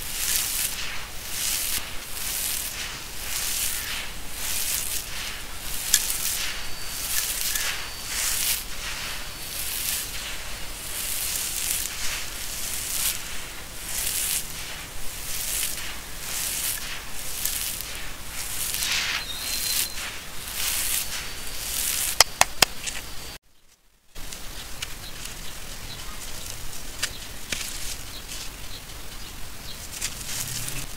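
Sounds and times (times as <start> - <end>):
grit poured onto a heap: 0.0 - 22.2
grains clicking: 0.0 - 23.0.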